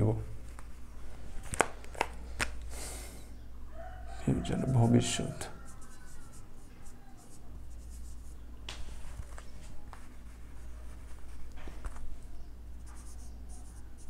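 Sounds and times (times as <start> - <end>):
low steady hum: 0.0 - 14.0
marker scratching on whiteboard: 4.7 - 8.4, 9.3 - 14.0.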